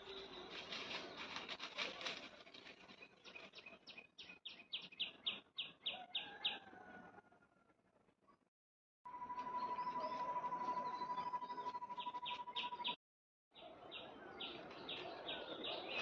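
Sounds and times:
scratchy rustling: 0.4 - 3.0.

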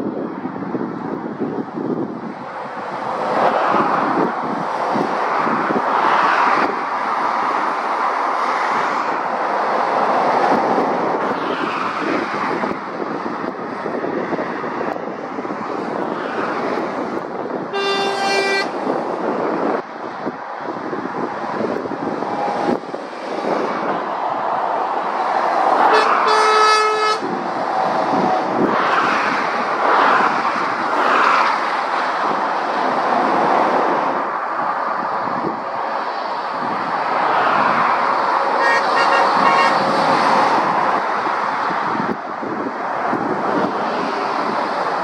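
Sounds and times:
vehicles passing at speed: 0.0 - 45.0
vehicle horn: 17.7 - 18.8, 25.9 - 27.3, 38.6 - 39.9.

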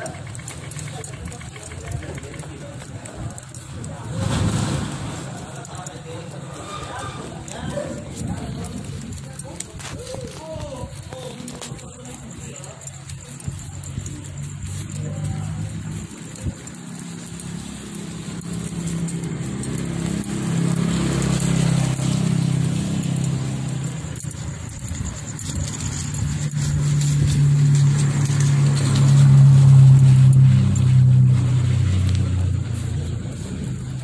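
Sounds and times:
tyres on wet road: 0.0 - 12.4, 13.1 - 34.0
car engine hum passing: 13.4 - 34.0.

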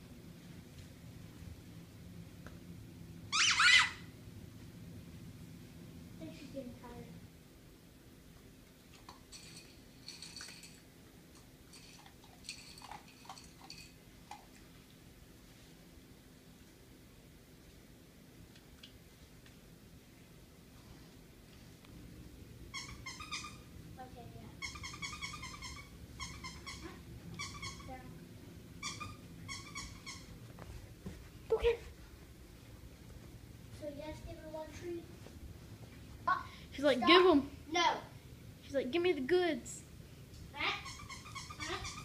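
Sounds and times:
squeaky dog toy: 3.3 - 4.1, 22.7 - 23.7, 24.6 - 28.0, 28.8 - 30.4, 40.6 - 42.0
dog eating from food bowl: 8.9 - 14.8.

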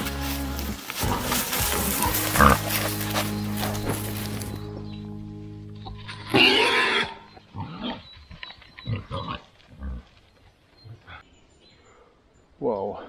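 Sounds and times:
pigs grunting: 0.0 - 4.1, 6.1 - 8.1, 8.8 - 10.1
pig squealing: 1.1 - 3.9, 6.1 - 8.0.

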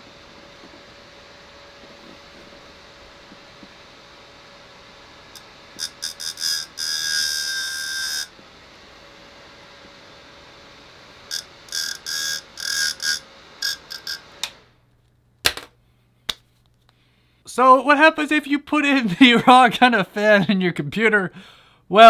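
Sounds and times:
server fan whooshing: 0.0 - 5.8
pen buzzing in fan blades: 5.3 - 8.4, 11.3 - 14.6.

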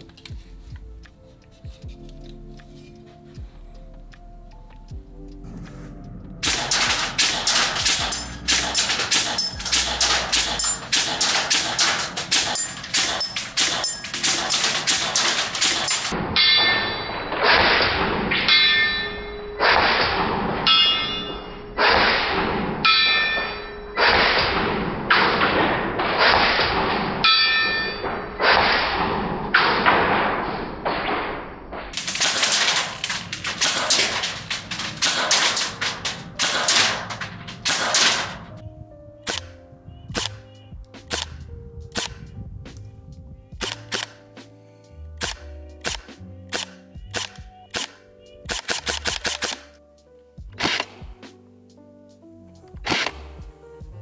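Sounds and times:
pellets clanging off steel plates: 6.4 - 20.1, 20.7 - 22.3, 25.2 - 28.9, 31.9 - 38.6.

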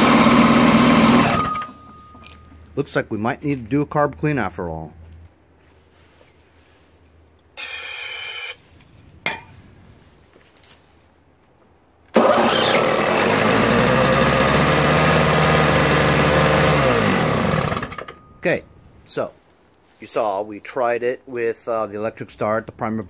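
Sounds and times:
two-stroke engine running: 0.0 - 1.8, 12.2 - 18.2.

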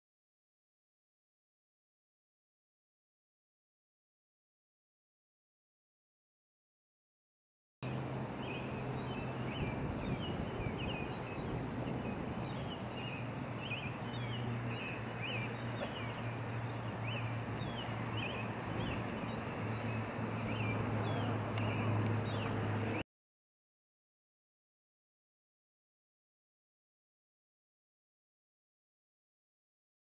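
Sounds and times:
birds chirping: 7.8 - 23.0.

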